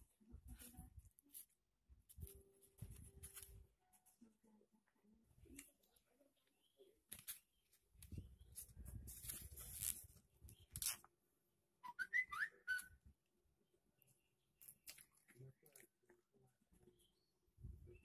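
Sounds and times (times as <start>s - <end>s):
rustling and scraping in styrofoam box: 7.3s - 11.0s.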